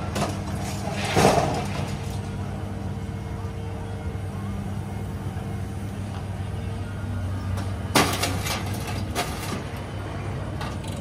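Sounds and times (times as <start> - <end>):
machine engine hum: 0.0 - 11.0
scrap metal crashing and clanking: 0.1 - 2.3, 7.9 - 9.8.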